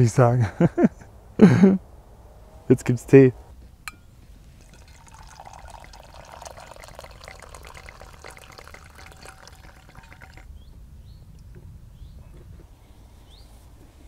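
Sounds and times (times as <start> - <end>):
liquid pouring into cup: 4.6 - 10.5.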